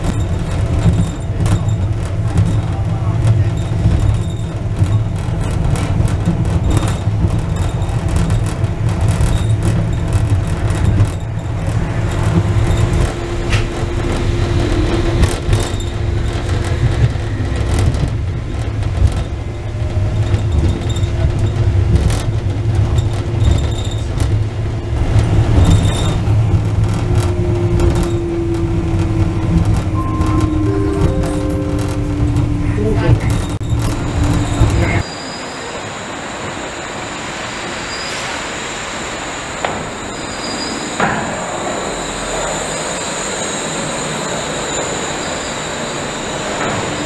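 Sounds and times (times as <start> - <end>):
railway car rumble: 0.0 - 47.0
faint whine: 26.0 - 37.1.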